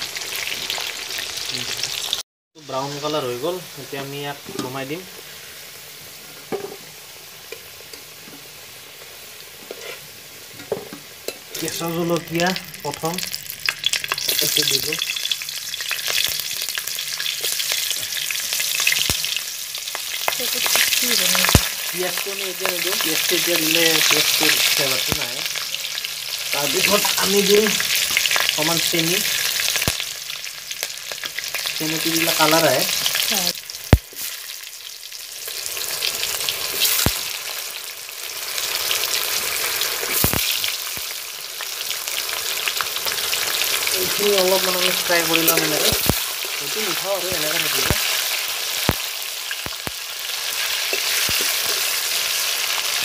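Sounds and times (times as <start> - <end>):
chillies sizzling in hot oil: 0.0 - 53.0.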